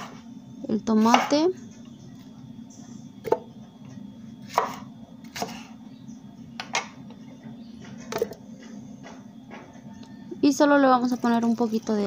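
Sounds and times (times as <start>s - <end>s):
steady low hum: 0.0s - 12.0s
knife cutting on wooden board: 4.5s - 5.7s.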